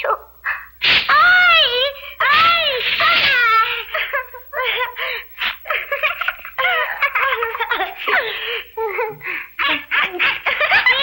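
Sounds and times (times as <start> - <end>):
children giggling: 2.8 - 11.0.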